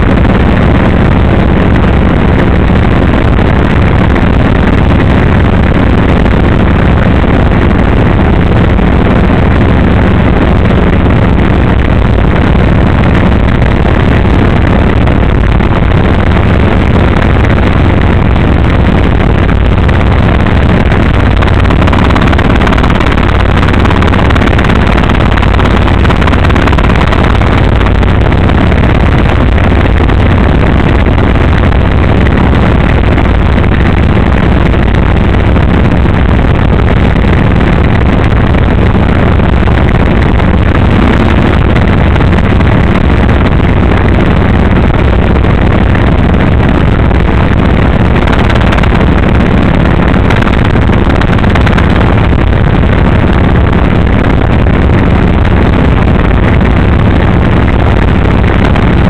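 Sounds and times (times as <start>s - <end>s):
helicopter engine and rotor drone: 0.0s - 36.6s, 37.4s - 46.9s.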